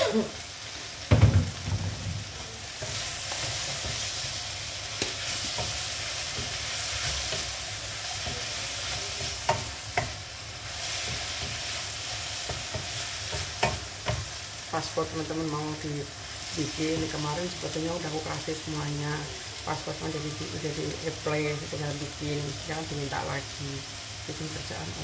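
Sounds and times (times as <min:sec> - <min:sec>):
vegetables sizzling in a frying pan: 0:00.0 - 0:25.0
spatula scraping and tapping pan: 0:01.7 - 0:10.2, 0:10.8 - 0:14.4.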